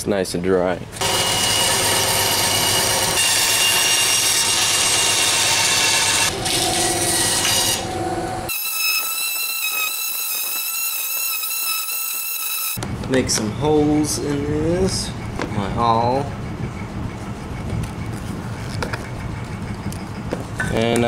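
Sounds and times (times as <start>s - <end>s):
band saw cutting wood: 1.0s - 12.8s.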